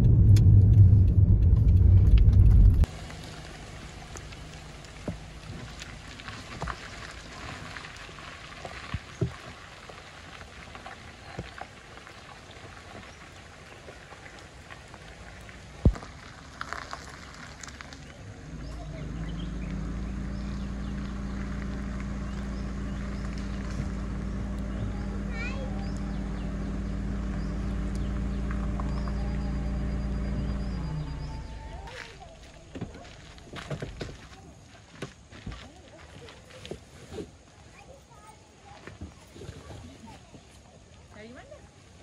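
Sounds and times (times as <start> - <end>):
car engine idling: 0.0 - 8.9, 13.4 - 34.0
light rain falling: 0.0 - 33.4.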